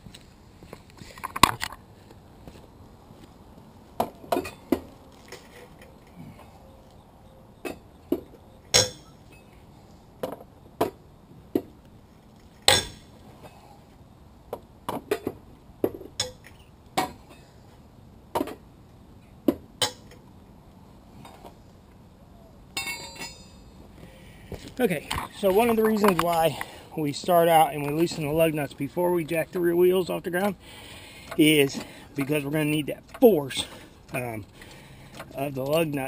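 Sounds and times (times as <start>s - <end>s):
lug wrench clinking on lug nuts: 7.6s - 9.6s, 22.8s - 23.8s.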